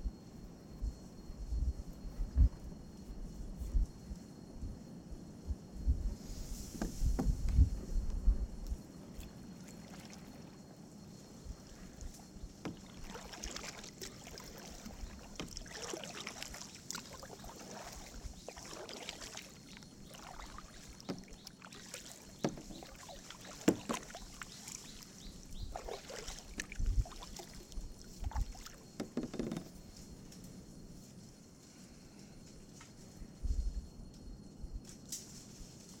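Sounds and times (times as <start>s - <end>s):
paddle splashing in water: 9.1s - 10.6s, 11.7s - 29.8s.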